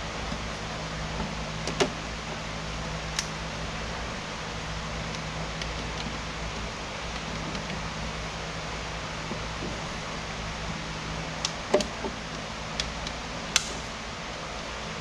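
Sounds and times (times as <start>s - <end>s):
steady low hum: 0.0s - 15.0s
sharp clicks of parts handled: 12.7s - 13.9s.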